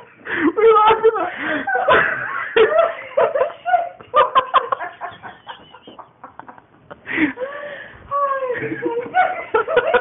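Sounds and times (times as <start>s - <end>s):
stifled giggling: 1.4s - 7.5s, 8.4s - 10.0s.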